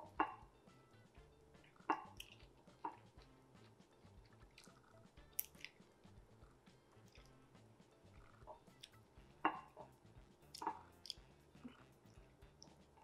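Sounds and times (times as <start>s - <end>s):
soft chewing: 1.5s - 13.0s
wet mouth smacks: 2.0s - 2.5s, 4.2s - 5.8s, 10.5s - 11.8s.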